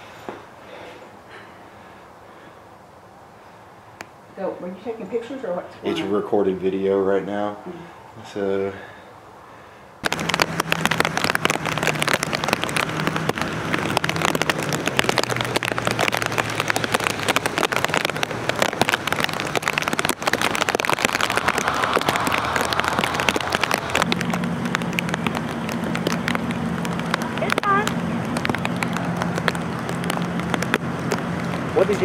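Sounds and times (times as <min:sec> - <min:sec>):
rain on wet pavement: 0:10.0 - 0:32.0.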